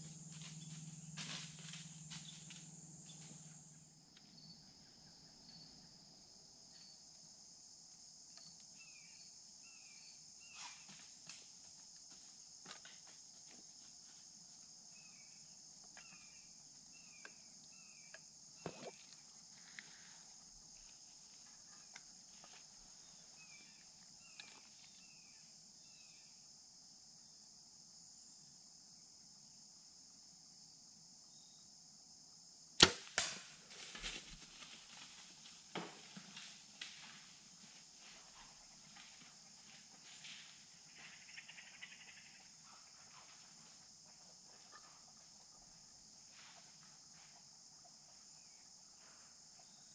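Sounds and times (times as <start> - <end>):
crickets chirring: 0.0 - 49.9
bow firing crack: 32.8 - 34.2.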